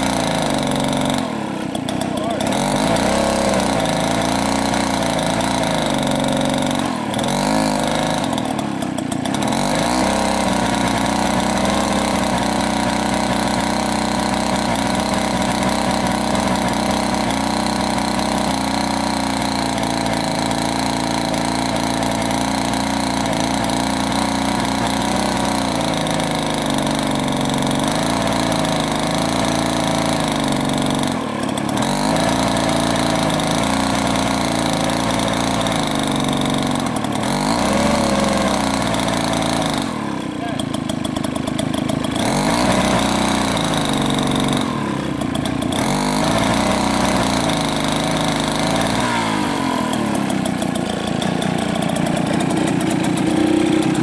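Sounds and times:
chainsaw cutting log: 0.0 - 54.0.

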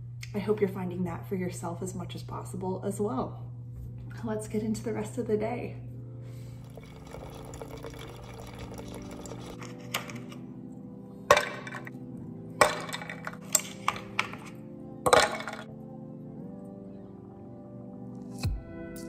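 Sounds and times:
soft background music: 0.0 - 19.0
coffee pouring over ice: 6.6 - 10.4
ice clinking against glass: 6.7 - 10.2.

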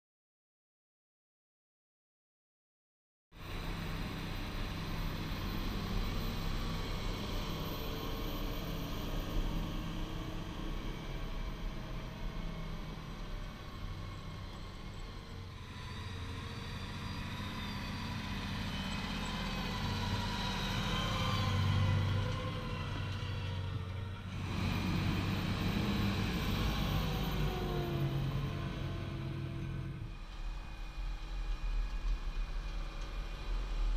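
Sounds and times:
tractor engines droning under load: 3.4 - 33.9.

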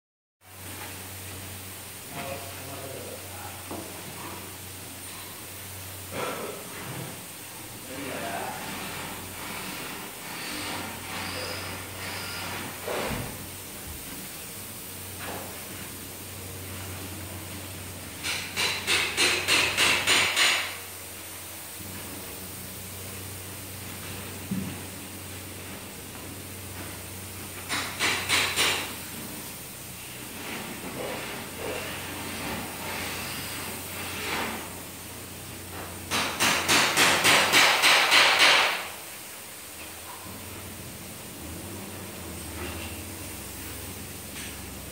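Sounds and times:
spray gun hissing: 5.2 - 35.5.

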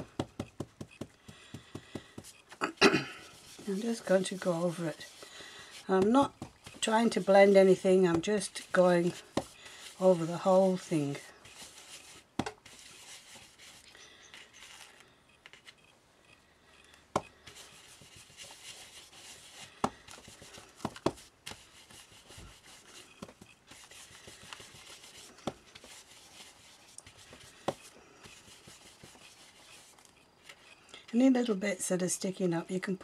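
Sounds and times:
brush tapping on card: 0.0 - 2.6, 3.3 - 10.0, 17.2 - 29.9
brush rubbing on paper card: 3.2 - 15.7, 17.5 - 30.7.

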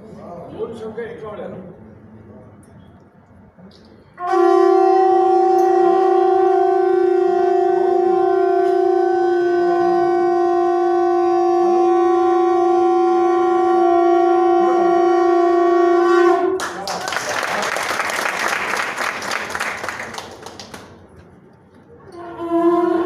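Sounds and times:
conch shell blown: 4.2 - 16.6, 22.1 - 23.0.

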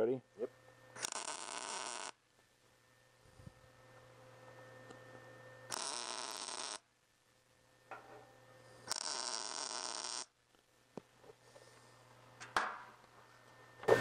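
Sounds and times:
welding arc crackling and buzzing: 0.9 - 2.4, 5.7 - 7.0, 8.9 - 10.6.

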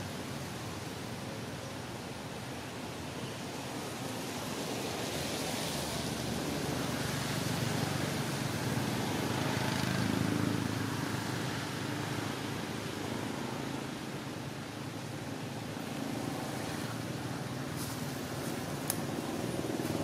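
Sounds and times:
rain on leaves: 17.8 - 20.0.

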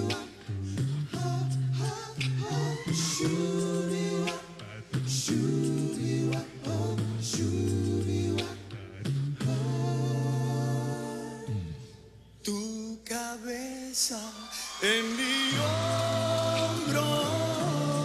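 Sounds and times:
sung bass line: 0.0 - 3.6, 4.8 - 11.8
male a cappella group singing: 0.0 - 18.0.

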